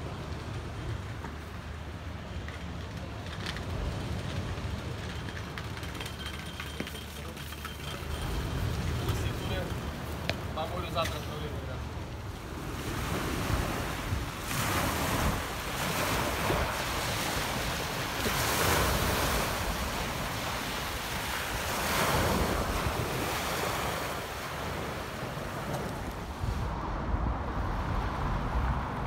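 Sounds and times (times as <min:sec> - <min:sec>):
wind rumbling on microphone: 0:00.0 - 0:29.0
waves on pebble beach: 0:06.0 - 0:26.6.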